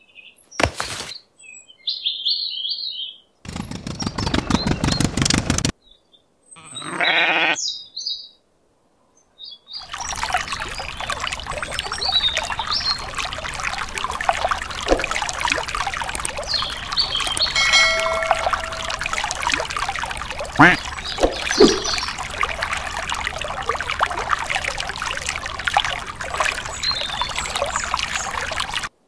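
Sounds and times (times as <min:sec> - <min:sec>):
sheep bleat: 0:06.6 - 0:07.6
birds chirping: 0:09.6 - 0:28.9
water trickling from a tap: 0:09.8 - 0:28.9.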